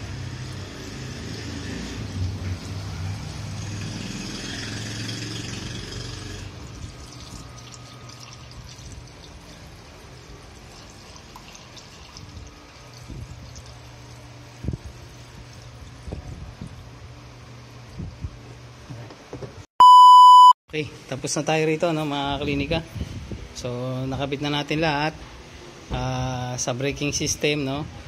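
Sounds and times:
liquid pouring into radiator: 6.6s - 14.3s.

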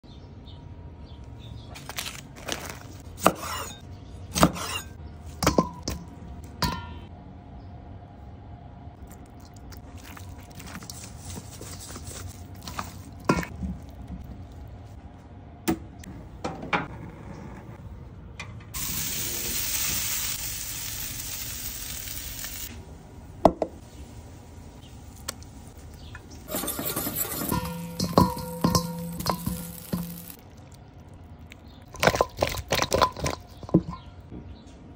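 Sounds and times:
clinks against metal bowl: 5.4s - 7.1s, 26.5s - 30.4s
wings sizzling on grill: 18.8s - 22.8s, 23.8s - 30.5s.

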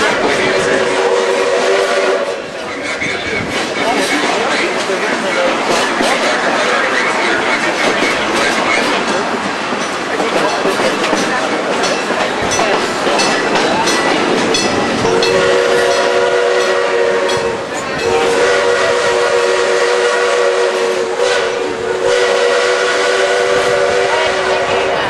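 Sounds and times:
train wheels clacking on rails: 0.0s - 25.0s
steam locomotive whistle blasts: 0.4s - 2.5s, 15.0s - 25.0s.

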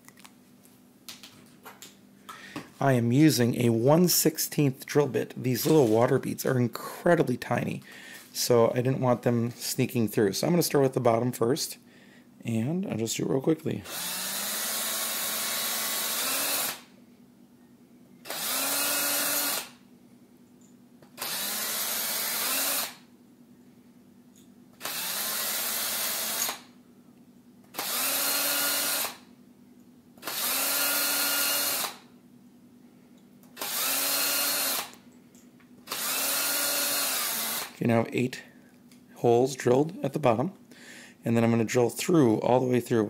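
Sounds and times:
small electric drill whining: 13.8s - 16.9s, 18.2s - 19.8s, 21.2s - 23.1s, 24.8s - 26.8s, 27.7s - 29.3s, 30.2s - 32.1s, 33.6s - 35.0s, 35.9s - 37.8s.

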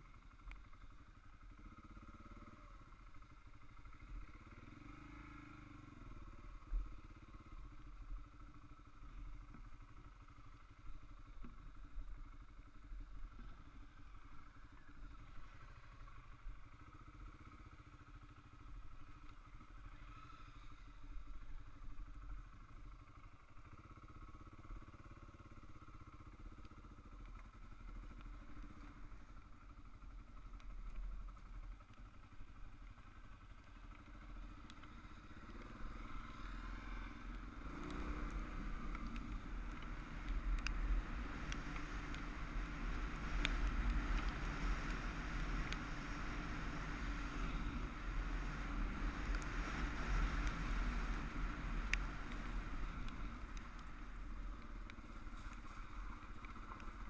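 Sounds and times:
motorcycle engine: 0.0s - 57.0s
sharp ticks: 25.8s - 57.0s.

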